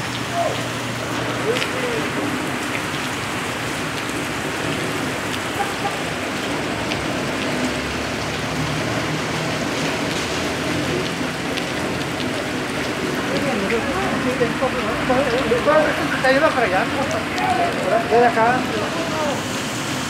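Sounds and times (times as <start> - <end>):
hail and rain falling: 0.0 - 20.0
hailstones ticking on ground: 9.4 - 19.4.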